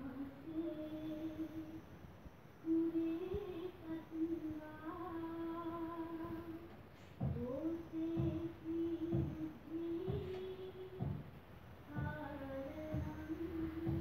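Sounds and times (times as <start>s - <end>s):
low thump: 7.2s - 12.2s
person humming: 11.9s - 14.0s.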